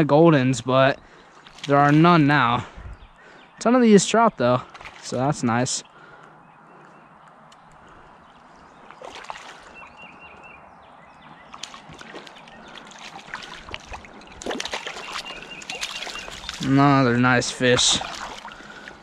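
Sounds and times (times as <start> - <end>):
fish splashing and thrashing: 1.3 - 2.2, 4.6 - 5.2, 7.8 - 10.1, 11.4 - 19.0
stream flowing: 7.8 - 19.0.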